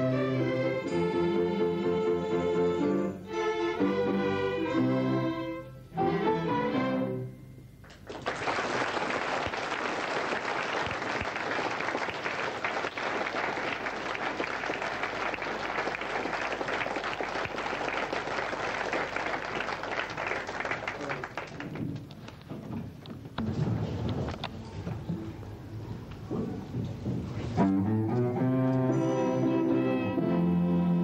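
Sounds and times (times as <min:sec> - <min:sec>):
audience applause: 0:08.0 - 0:22.3
orchestra chord: 0:27.6 - 0:31.0.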